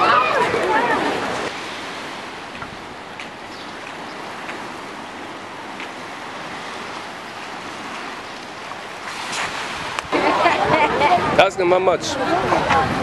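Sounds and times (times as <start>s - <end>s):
small waves breaking on sand: 0.0s - 13.0s.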